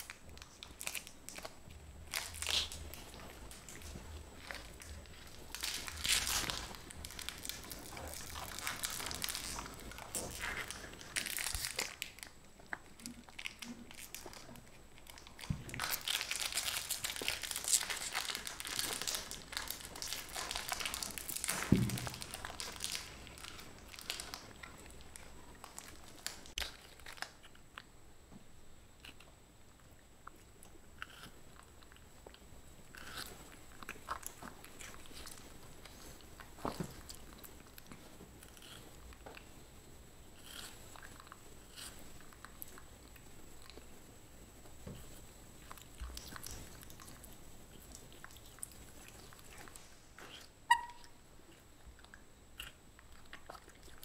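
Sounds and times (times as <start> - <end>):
plastic wrappers crinkling: 0.0 - 27.6
crunching hard candy: 0.0 - 27.9.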